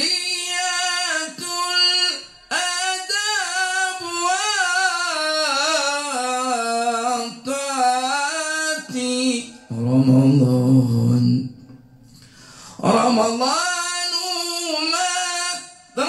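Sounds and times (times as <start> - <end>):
man singing solo: 12.8 - 16.0.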